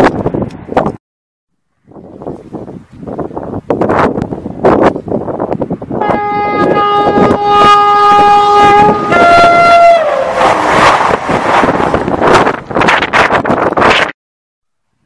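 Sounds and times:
wind gusts on microphone: 0.0s - 1.0s, 1.8s - 14.2s
two-tone train horn: 6.0s - 10.9s
train rushing past: 6.0s - 12.9s.

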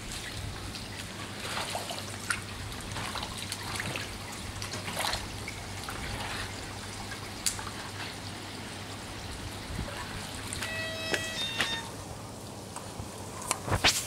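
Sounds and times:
small clicks and splashes: 0.0s - 8.3s
water trickling and running: 0.0s - 13.8s
short pitched tone: 10.6s - 12.0s.

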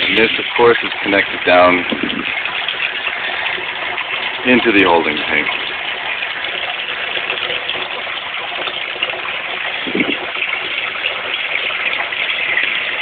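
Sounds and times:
water gushing from barrel: 0.0s - 13.0s.

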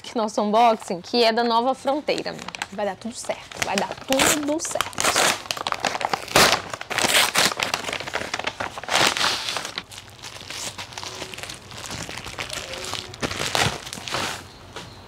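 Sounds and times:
paper and plastic crinkling: 0.6s - 14.8s
paper mailer tearing: 3.5s - 14.5s.

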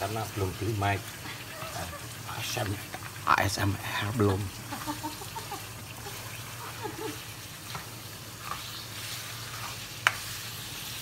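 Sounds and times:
meat frying in a wok: 0.0s - 11.0s
spatula scraping a wok: 8.3s - 11.0s.

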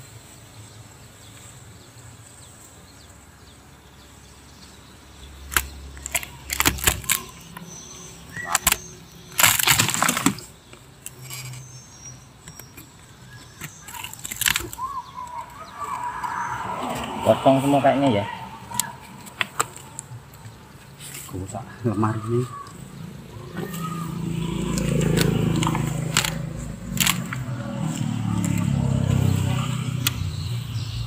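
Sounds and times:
wood cracking and crackling: 5.4s - 17.2s, 18.4s - 30.3s.

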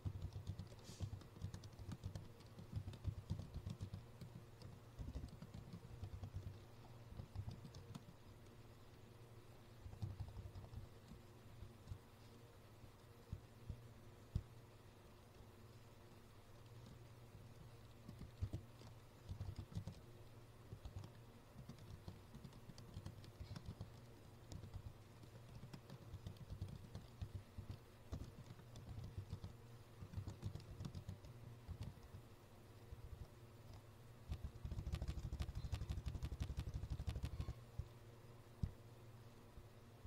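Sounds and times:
typing on a computer keyboard: 0.0s - 8.6s, 9.8s - 12.0s, 16.6s - 20.1s, 20.7s - 32.2s, 33.2s - 37.6s
low steady hum: 0.0s - 40.0s.

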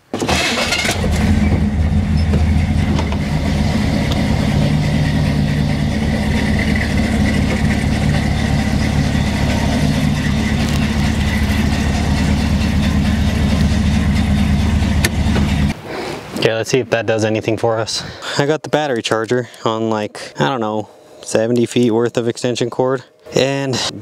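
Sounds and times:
pickup truck engine running: 0.3s - 15.8s.

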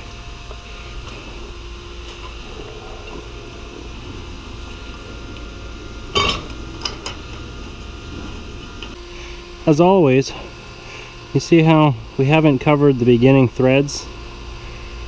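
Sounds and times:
low machinery hum: 0.0s - 15.0s
sharp metallic clank: 6.2s - 7.2s.

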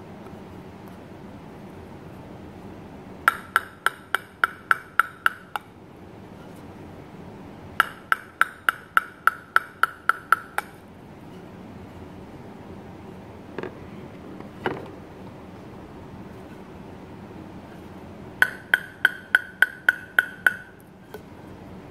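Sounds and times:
table tennis ball bouncing on wood: 3.3s - 5.7s, 7.8s - 10.8s, 18.4s - 20.8s.

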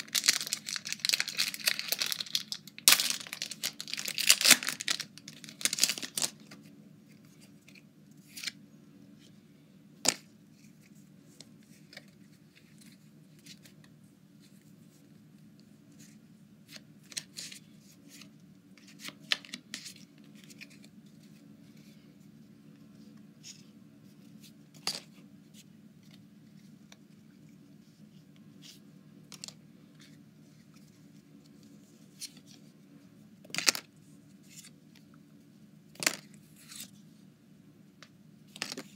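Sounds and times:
foil wrappers crinkling: 0.0s - 6.4s
low steady hum: 0.0s - 38.9s.

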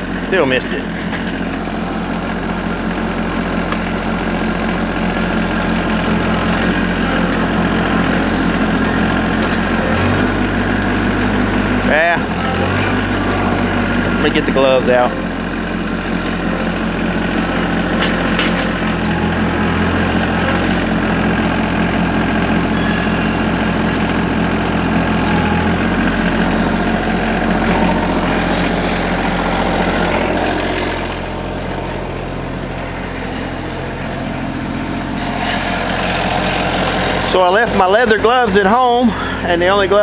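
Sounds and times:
tractor diesel engine running: 0.0s - 40.0s.

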